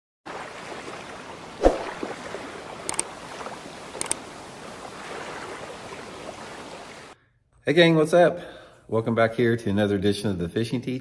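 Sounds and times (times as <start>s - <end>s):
water-like wash: 0.3s - 7.2s.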